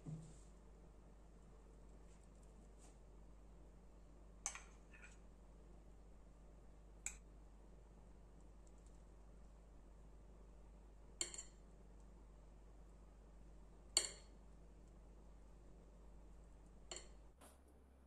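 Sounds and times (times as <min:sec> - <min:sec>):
faint steady hum: 0:00.0 - 0:18.0
metal spoon clinking on a dish: 0:04.5 - 0:05.1, 0:11.2 - 0:11.6.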